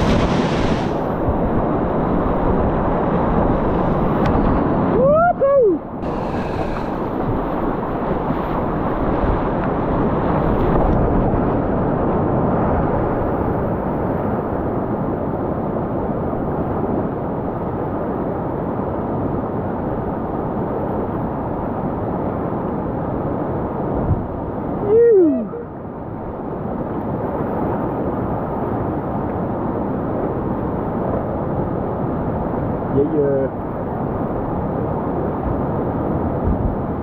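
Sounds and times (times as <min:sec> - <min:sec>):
river rapid rushing water: 0:00.0 - 0:11.0
person shouting: 0:24.9 - 0:25.6.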